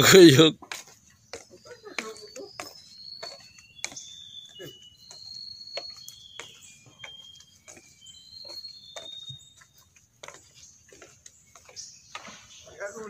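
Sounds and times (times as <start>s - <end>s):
footsteps on wooden boards: 0.0s - 13.0s
bird whistling high notes: 1.6s - 9.9s.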